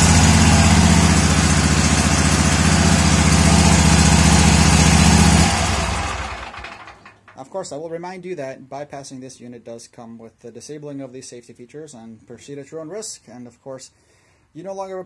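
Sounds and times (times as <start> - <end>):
mower engine running: 0.0 - 7.1.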